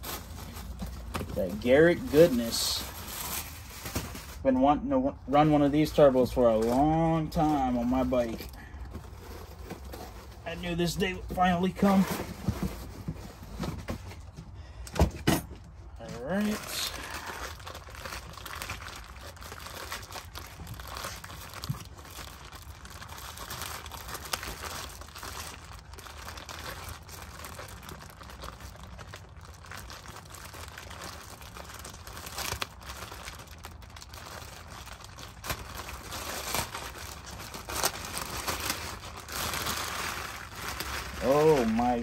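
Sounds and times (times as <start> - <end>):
packaging crinkling and tearing: 0.0 - 4.4, 15.9 - 42.0.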